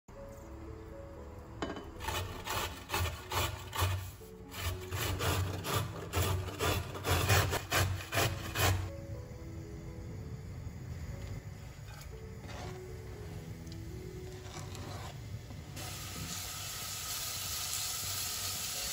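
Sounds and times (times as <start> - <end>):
carrot grating on metal grater: 2.0 - 8.9, 14.4 - 15.2.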